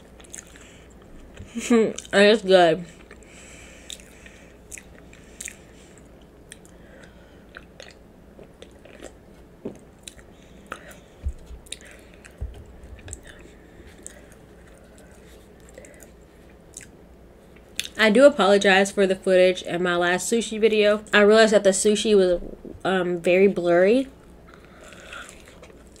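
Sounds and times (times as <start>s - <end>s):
person chewing food: 0.1s - 2.1s, 2.9s - 16.9s, 24.5s - 26.0s
soft low thumps: 11.2s - 11.8s, 12.4s - 13.4s, 22.3s - 22.9s.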